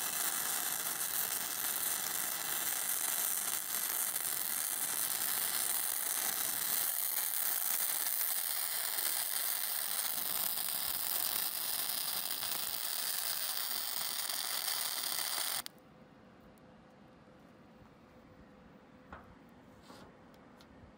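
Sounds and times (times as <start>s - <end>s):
welding arc hissing: 0.0s - 15.7s.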